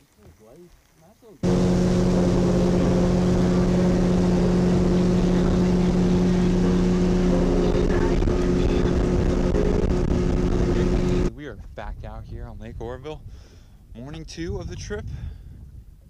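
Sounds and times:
boat engine drone: 1.4 - 11.3
water rushing from hull: 1.4 - 11.3.

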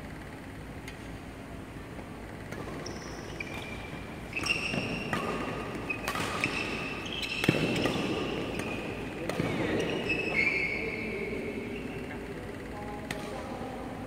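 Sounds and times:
racket hitting shuttlecock: 2.4 - 10.0
shoes squeaking on court floor: 2.4 - 12.2.

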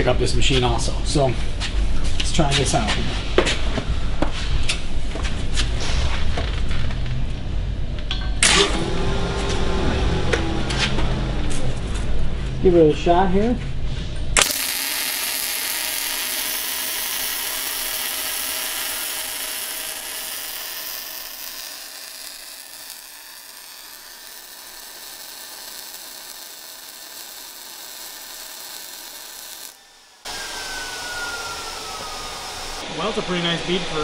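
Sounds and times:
welding arc crackling: 14.4 - 32.8.

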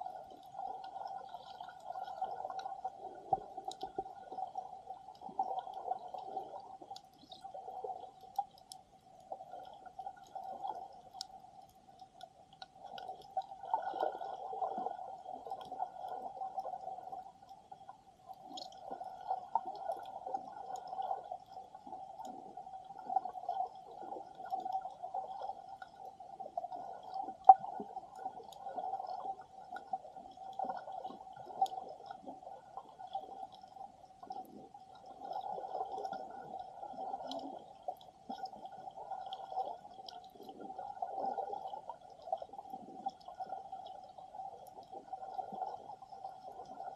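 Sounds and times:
faint ticks: 0.0 - 40.9, 41.6 - 46.9.

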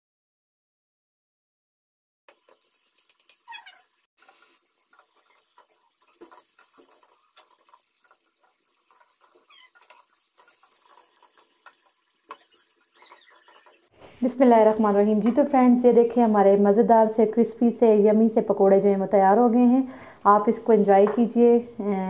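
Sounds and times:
wooden spatula ticks: 2.3 - 13.9
food deep-frying in oil: 2.3 - 18.5.

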